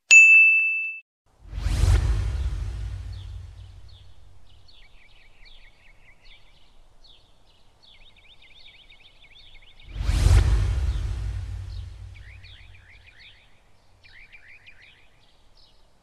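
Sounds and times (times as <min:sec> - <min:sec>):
low rumble: 0:01.4 - 0:04.6, 0:09.9 - 0:13.2
birds chirping and trilling: 0:03.0 - 0:16.0.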